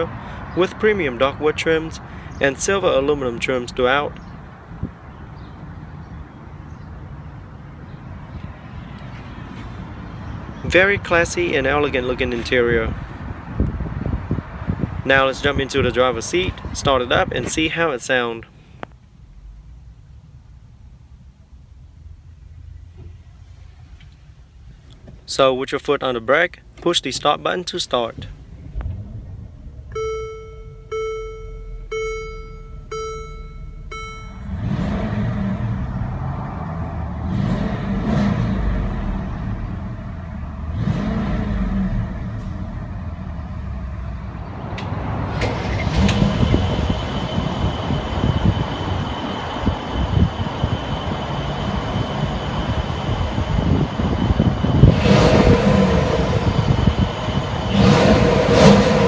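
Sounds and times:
car engine starting and idling: 27.9s - 59.0s
engine revving: 31.9s - 59.0s.

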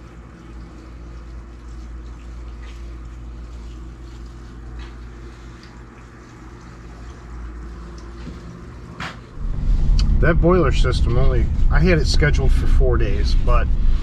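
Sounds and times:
water trickling in pipes: 0.0s - 9.5s
pumps humming: 0.0s - 14.0s.

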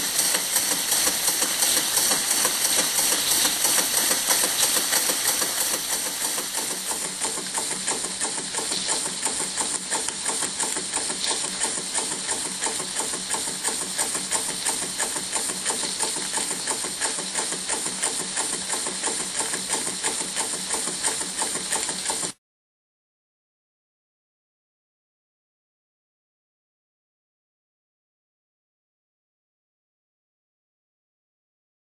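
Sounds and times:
steam engine valve gear beat: 0.0s - 22.4s
steam hissing: 0.0s - 22.4s.

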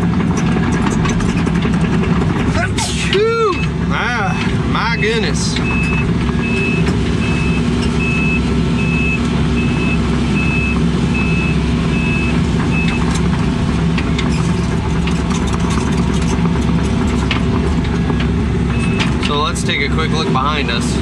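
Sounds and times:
excavator running: 0.0s - 21.0s
travel alarm beeping: 4.9s - 13.0s, 18.7s - 19.0s.

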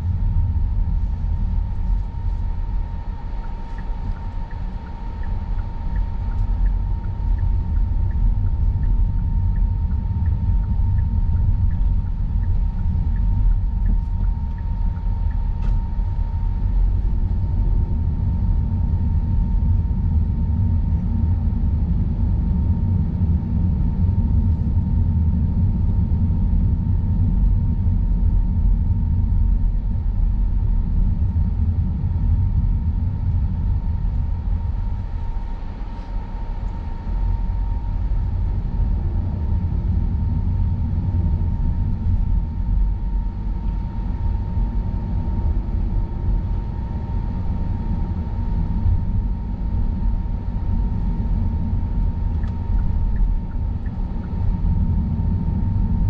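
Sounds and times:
car engine and road rumble: 0.0s - 19.9s
faint whine: 0.0s - 56.0s
faint ticks: 3.4s - 15.8s.

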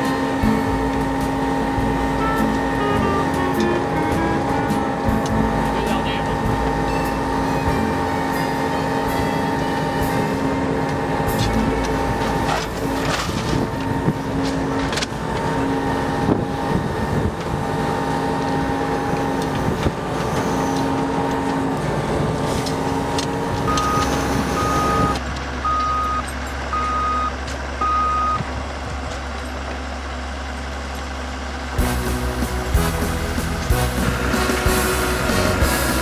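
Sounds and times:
machine engine with whine: 0.0s - 36.0s
reversing alarm beeping: 2.1s - 5.0s, 23.7s - 28.5s.

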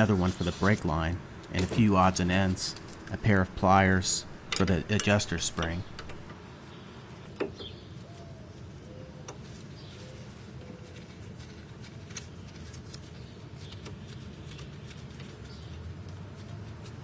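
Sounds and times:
wrench clicking on metal: 4.1s - 6.3s.

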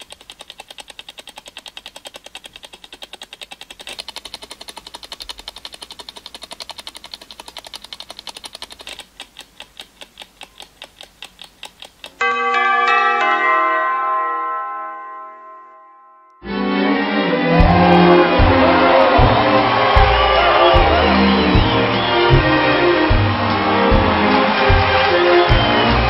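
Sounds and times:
clock ticking: 0.0s - 12.3s
bell ringing: 12.2s - 16.6s.

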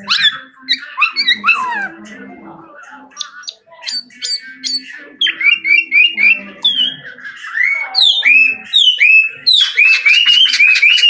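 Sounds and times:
blackbird whistling song: 3.9s - 11.0s.

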